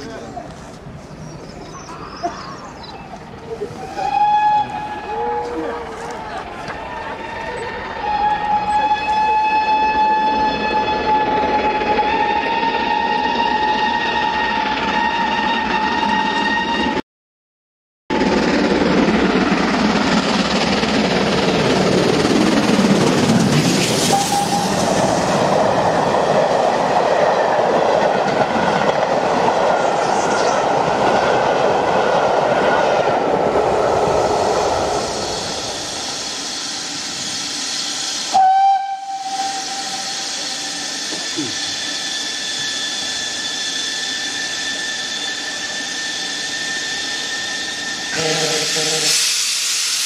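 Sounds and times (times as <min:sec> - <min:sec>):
steam train passing: 0:00.0 - 0:17.0, 0:18.1 - 0:50.0
steam whistle blast: 0:03.8 - 0:05.8, 0:06.9 - 0:17.0, 0:24.0 - 0:25.3, 0:35.1 - 0:50.0
steam hissing: 0:18.4 - 0:31.9, 0:33.4 - 0:50.0.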